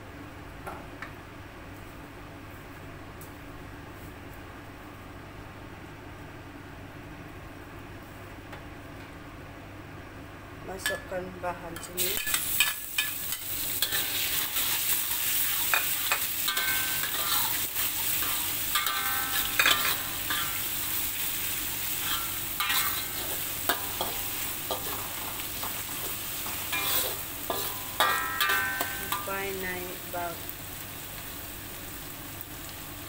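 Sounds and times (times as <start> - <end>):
shallots sizzling in hot oil: 11.8 - 33.0
metal spatula scraping a wok: 12.0 - 21.2, 21.8 - 29.3
spatula clinking against wok: 15.7 - 17.5, 18.2 - 20.6, 22.0 - 25.0, 26.4 - 29.3.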